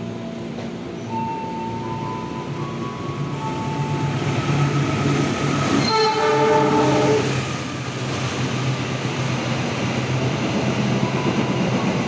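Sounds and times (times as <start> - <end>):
train rumbling: 0.0 - 12.0
locomotive horn: 5.8 - 7.3.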